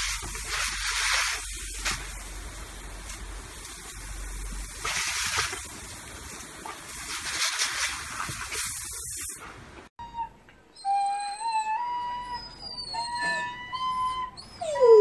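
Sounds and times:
garden hose spraying water: 0:00.0 - 0:09.8
dog howling: 0:10.1 - 0:15.0.

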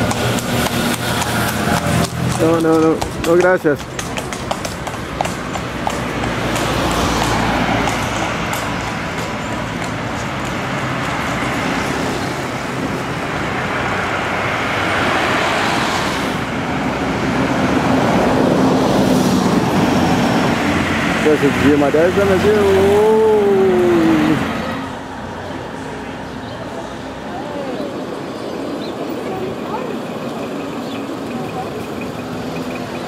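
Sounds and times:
motorbike engine: 0:00.0 - 0:12.6
passing car engines: 0:00.0 - 0:33.0
road noise: 0:00.0 - 0:33.0.

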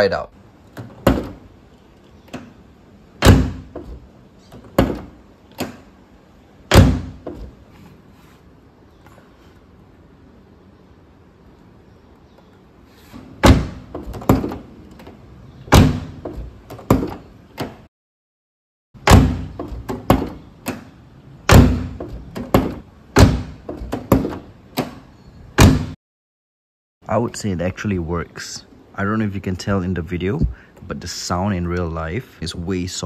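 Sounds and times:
car door slamming: 0:03.2 - 0:04.0, 0:04.6 - 0:05.9, 0:06.7 - 0:07.6, 0:13.4 - 0:14.7, 0:15.7 - 0:17.8, 0:19.0 - 0:20.8, 0:21.5 - 0:25.0, 0:25.6 - 0:26.0.

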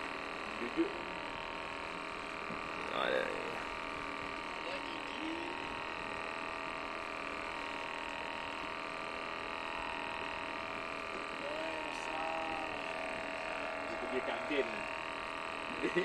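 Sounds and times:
steady hum of held tones: 0:00.0 - 0:16.0.

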